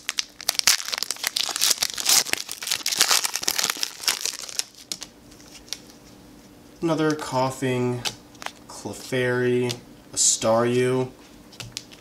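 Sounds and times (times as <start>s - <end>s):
foil wrapper crinkling: 0.0s - 5.8s.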